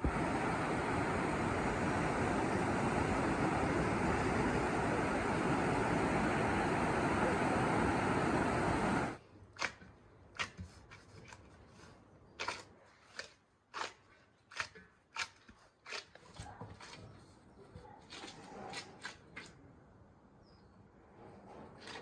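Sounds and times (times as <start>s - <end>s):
surf: 0.0s - 9.2s
wind noise: 0.0s - 9.2s
dough being kneaded: 9.6s - 19.5s.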